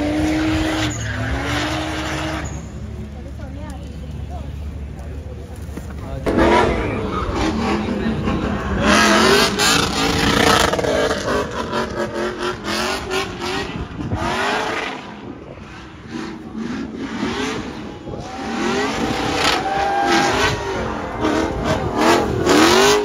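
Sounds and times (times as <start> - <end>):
car engine revving hard: 6.3 - 23.0.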